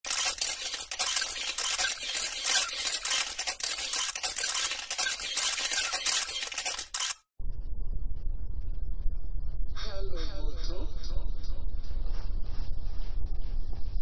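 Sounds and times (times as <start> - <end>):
low rumble: 7.4 - 14.0.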